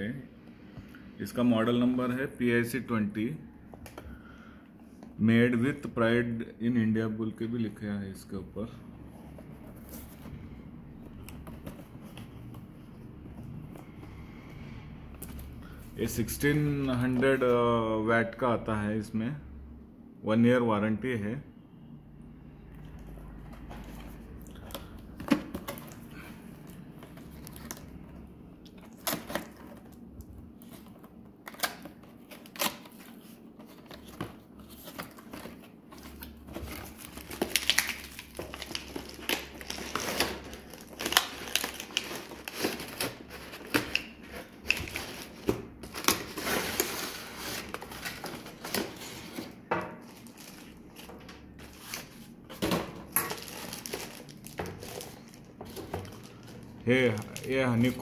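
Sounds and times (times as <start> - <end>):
plastic wrap crinkling: 25.6 - 58.0.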